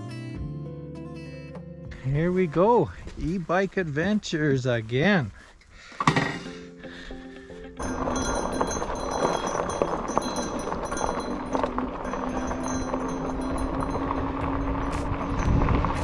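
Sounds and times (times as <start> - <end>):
bike tires rolling on trail: 2.0 - 6.0, 6.9 - 16.0
wind buffeting microphone: 7.8 - 16.0.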